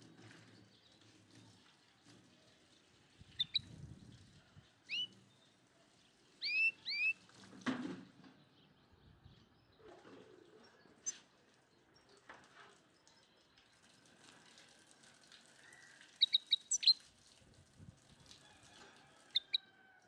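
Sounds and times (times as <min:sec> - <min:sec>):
small bird chirping: 0:03.3 - 0:03.8, 0:04.9 - 0:05.4, 0:06.4 - 0:07.2, 0:10.9 - 0:11.3, 0:15.7 - 0:17.1, 0:19.4 - 0:19.6.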